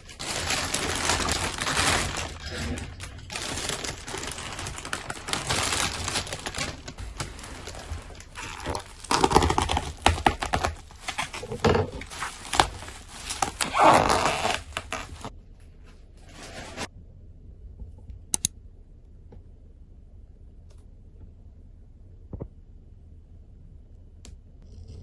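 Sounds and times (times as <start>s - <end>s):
bubble wrap crinkling: 0.0s - 15.3s.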